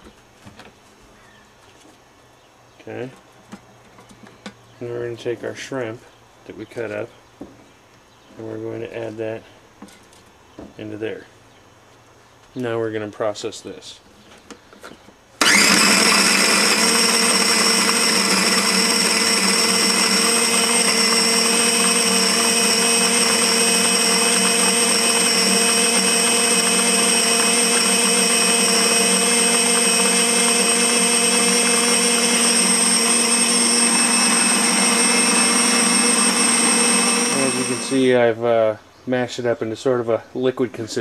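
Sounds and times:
food processor motor whining: 15.4s - 38.1s.

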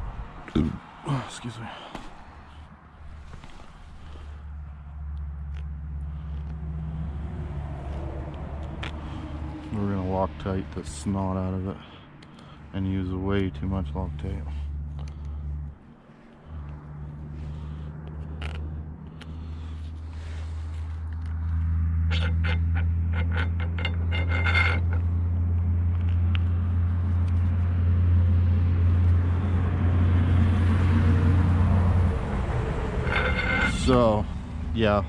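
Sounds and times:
low mechanical hum: 11.8s - 35.0s.

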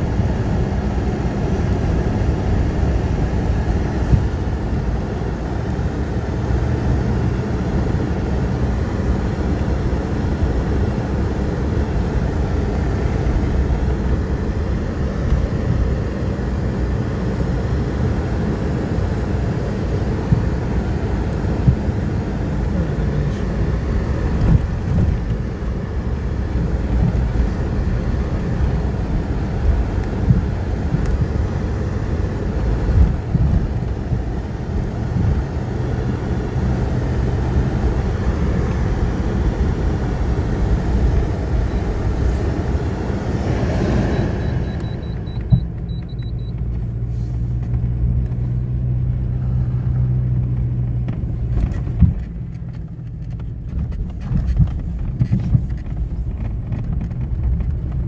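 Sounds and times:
car engine and tyre rumble: 0.0s - 58.0s
car bumps: 50.6s - 58.0s.

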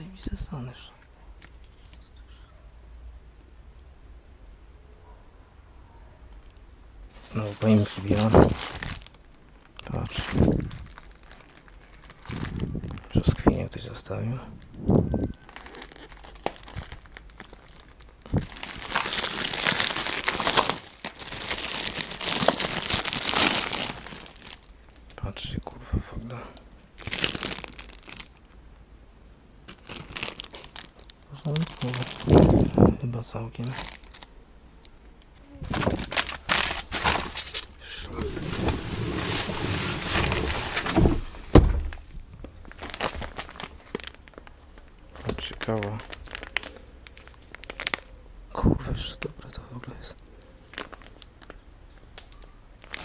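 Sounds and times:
plastic bag crinkling: 7.1s - 13.4s, 14.6s - 25.3s, 27.0s - 28.6s, 29.7s - 34.3s, 35.6s - 48.1s, 50.5s - 53.0s
loud thump: 40.2s - 42.0s.

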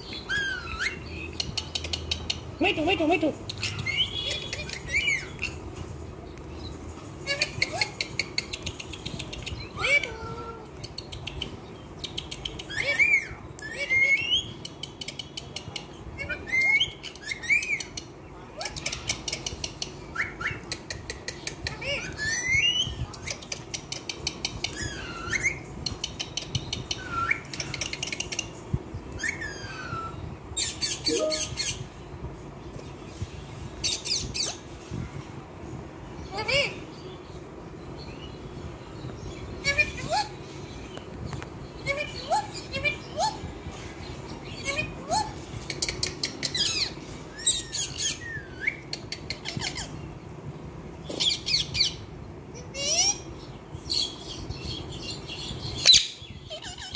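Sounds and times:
parakeets squawking and chirping: 0.0s - 6.0s, 7.0s - 15.2s, 16.0s - 32.0s, 41.7s - 50.2s, 51.0s - 56.9s
parakeet whistles: 29.1s - 31.8s.

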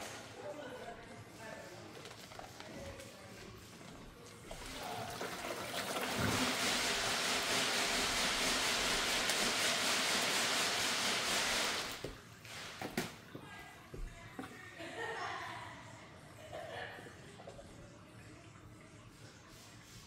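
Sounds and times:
water pouring into a bucket: 4.5s - 12.8s.

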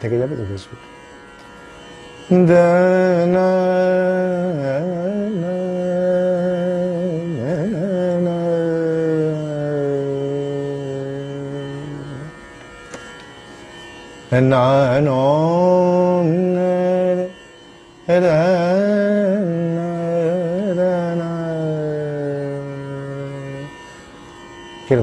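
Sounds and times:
man singing wordless melody: 2.3s - 12.4s, 14.3s - 17.4s, 18.0s - 23.7s.

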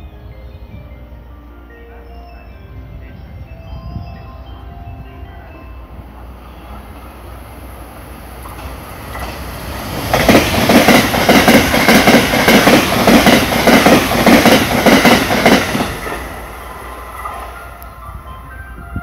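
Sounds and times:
train passing at speed: 0.0s - 19.0s
wheels clacking over rail joints: 8.3s - 17.9s.

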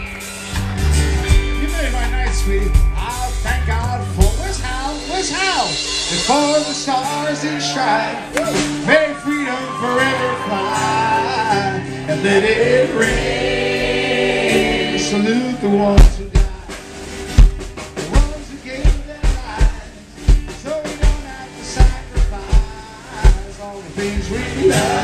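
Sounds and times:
drum kit hard hits: 0.0s - 7.2s, 15.8s - 25.0s
guitar and bass chords: 0.0s - 25.0s
live band playing: 0.0s - 25.0s
person singing: 9.0s - 16.8s, 21.2s - 25.0s.

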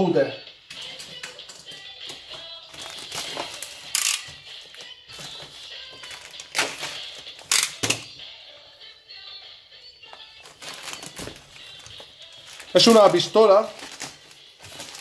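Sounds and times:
music playing: 0.0s - 15.0s
plastic bag crinkling: 2.7s - 3.9s, 10.4s - 15.0s.

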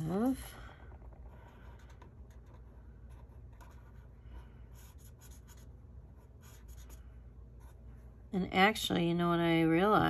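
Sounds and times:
marker scratching on paper: 1.3s - 7.0s.

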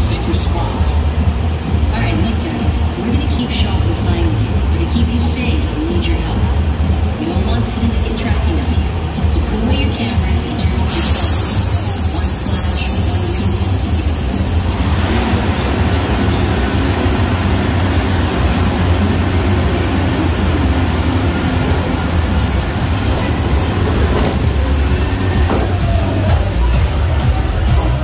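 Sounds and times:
tram rumbling: 0.0s - 28.0s
hiss: 10.9s - 15.7s.

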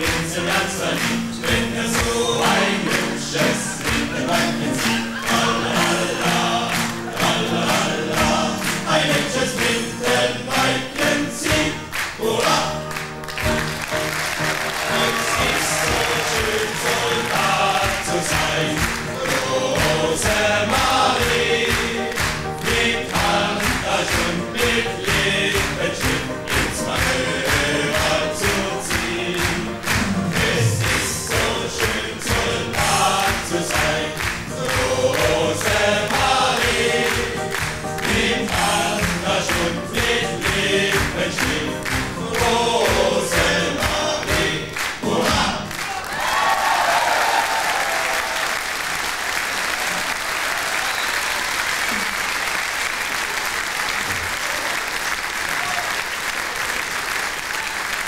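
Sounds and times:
men singing a march song: 0.0s - 12.8s, 14.8s - 45.8s
live music: 0.0s - 45.8s
audience clapping along: 0.0s - 58.0s
sustained applause: 0.0s - 58.0s.

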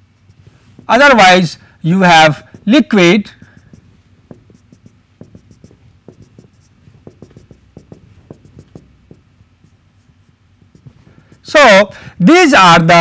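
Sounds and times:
marker pen tapping on whiteboard: 0.2s - 0.9s, 2.3s - 11.5s.

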